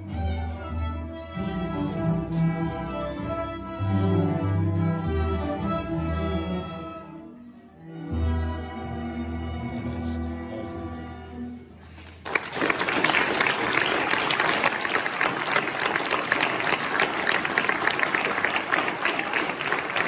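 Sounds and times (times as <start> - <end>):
audience applause: 12.0 - 20.0.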